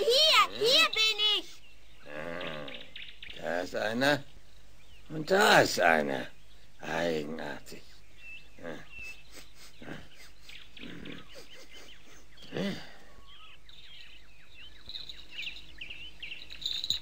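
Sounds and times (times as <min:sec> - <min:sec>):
birds chirping: 0:00.0 - 0:17.0
grunt-like vocal sound: 0:02.0 - 0:02.9, 0:09.8 - 0:10.1, 0:12.4 - 0:13.1.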